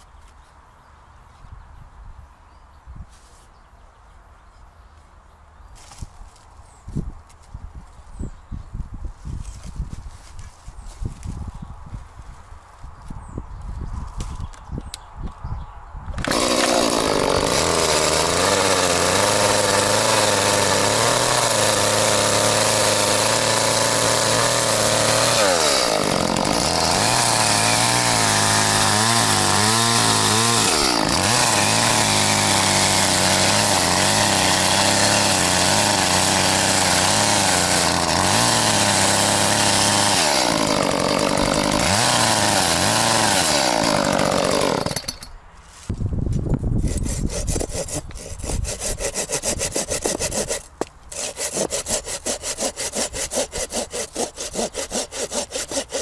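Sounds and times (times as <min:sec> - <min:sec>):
chainsaw running: 0:16.1 - 0:45.3, 0:46.8 - 0:56.0.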